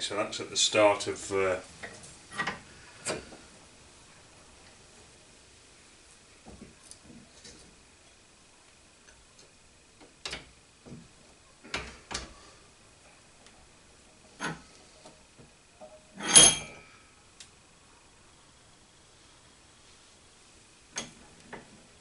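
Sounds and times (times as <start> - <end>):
metallic ring: 15.8 - 17.0.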